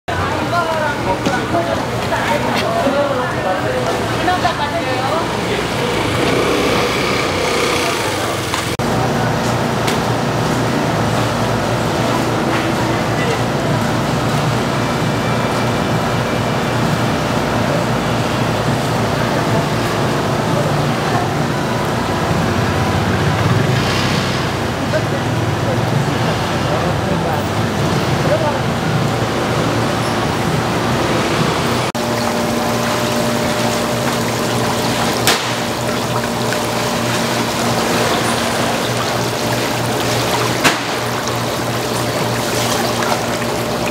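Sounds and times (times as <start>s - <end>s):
market street rumble and hiss: 0.1s - 43.9s
steady hum: 28.4s - 43.9s
water rushing and bubbling: 30.8s - 43.9s.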